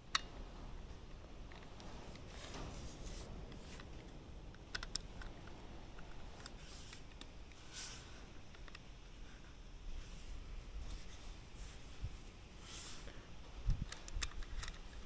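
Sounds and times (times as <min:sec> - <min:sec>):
small metal clicks and scrapes: 0:01.5 - 0:10.3, 0:13.8 - 0:15.0.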